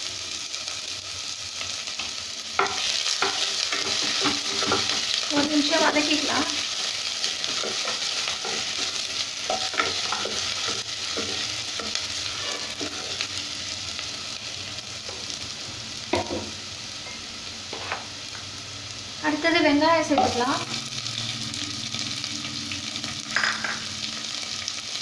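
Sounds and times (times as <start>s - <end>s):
garlic sizzling in hot oil: 0.0s - 25.0s
wooden spatula scraping pan: 7.4s - 13.3s.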